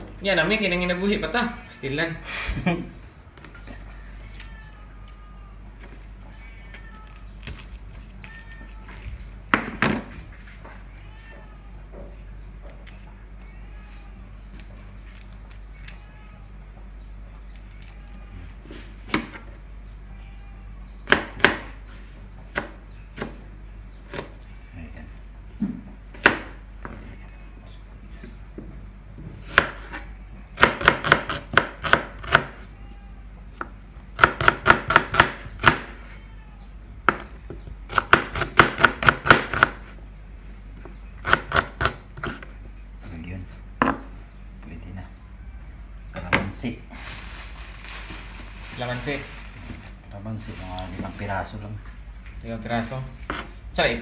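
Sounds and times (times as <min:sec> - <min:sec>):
knife chopping on plastic board: 0:30.6 - 0:32.5, 0:33.6 - 0:35.9, 0:37.1 - 0:39.8.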